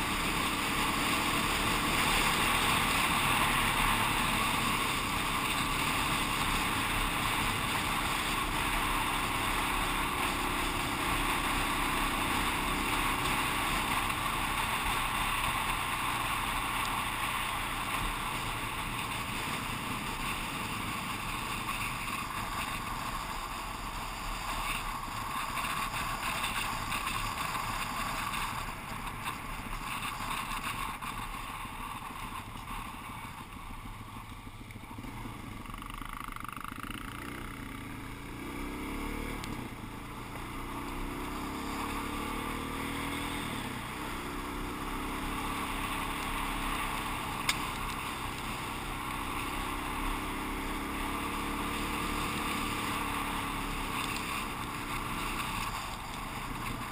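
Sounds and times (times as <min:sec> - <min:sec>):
motorcycle engine revving: 0:00.0 - 0:56.9.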